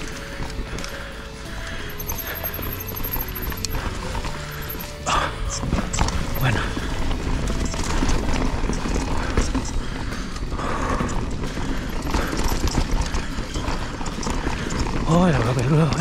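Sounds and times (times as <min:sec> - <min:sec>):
bike rattling over bumps: 0:00.0 - 0:16.0
tyres clattering on loose stones: 0:00.0 - 0:16.0.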